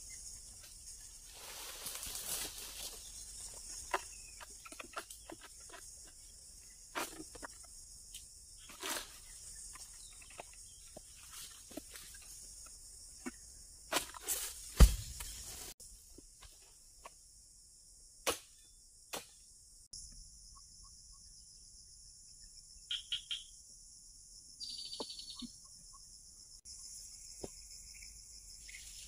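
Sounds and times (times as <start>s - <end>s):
insects chirring: 0.0s - 29.0s
sickle hacking and scraping: 1.3s - 15.8s.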